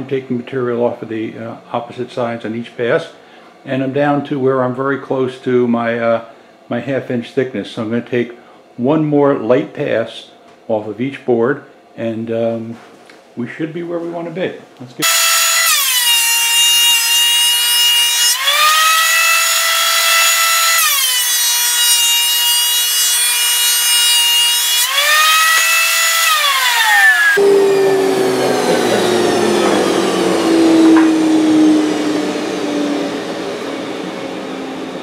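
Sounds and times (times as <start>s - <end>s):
thickness planer whining: 15.0s - 35.0s.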